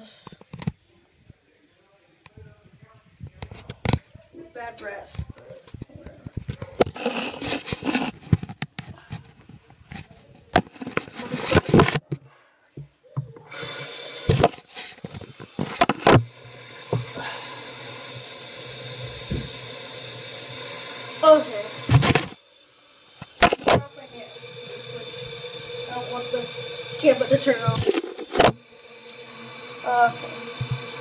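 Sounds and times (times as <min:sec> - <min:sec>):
sink tap running: 0:04.6 - 0:09.6, 0:10.5 - 0:12.1, 0:13.2 - 0:31.0
camera handling knocks and rustles: 0:07.5 - 0:09.5.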